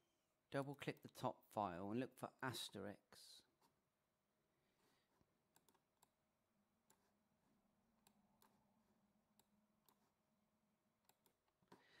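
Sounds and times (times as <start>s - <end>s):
computer mouse clicks: 5.5s - 6.2s, 8.0s - 8.7s, 9.3s - 10.2s, 11.0s - 11.8s.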